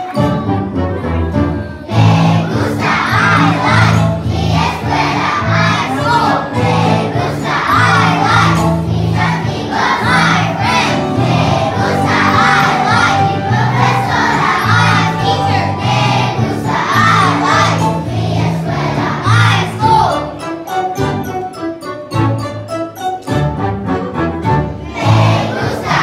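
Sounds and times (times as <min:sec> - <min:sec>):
children singing together: 0:00.0 - 0:20.3, 0:24.8 - 0:26.0
recorded accompaniment with bass: 0:00.2 - 0:20.1.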